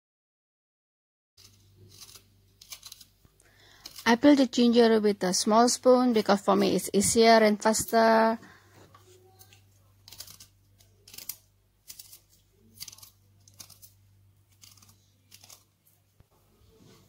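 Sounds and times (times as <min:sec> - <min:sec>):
spoon scraping ginger root: 0:01.4 - 0:04.6, 0:09.3 - 0:15.8.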